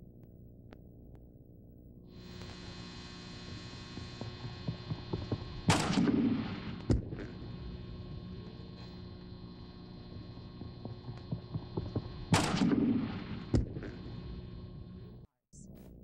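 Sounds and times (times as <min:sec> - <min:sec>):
steady hum: 0:00.0 - 0:16.0
feet banging on springboard: 0:11.3 - 0:14.0.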